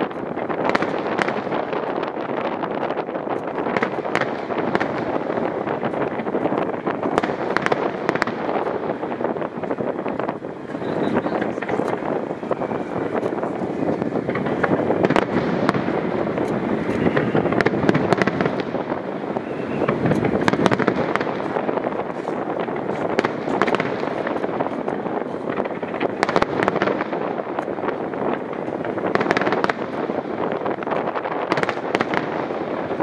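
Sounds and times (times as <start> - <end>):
firework pops and crackles: 0.0 - 33.0.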